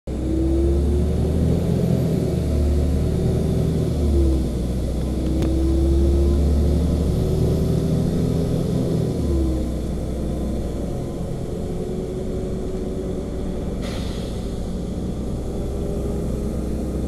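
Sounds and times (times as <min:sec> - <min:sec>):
bus engine running: 0:00.1 - 0:17.0
road noise: 0:00.1 - 0:17.0.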